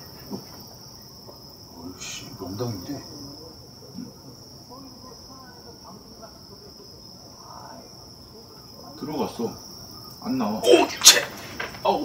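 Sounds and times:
crickets chirping chorus: 0.0s - 12.0s
faint voices: 1.6s - 12.0s.

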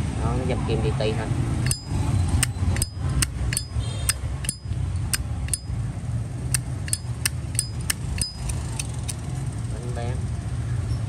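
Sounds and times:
low steady rumble: 0.0s - 10.9s.

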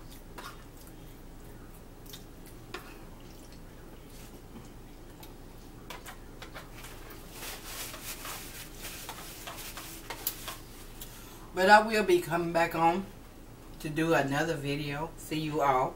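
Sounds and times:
paper towel crumpling: 6.8s - 11.0s.

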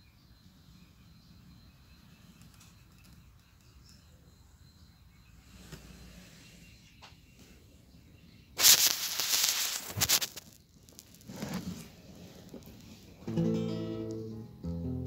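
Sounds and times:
microphone handling noise: 8.6s - 12.9s
acoustic guitar strummed: 13.2s - 15.0s.

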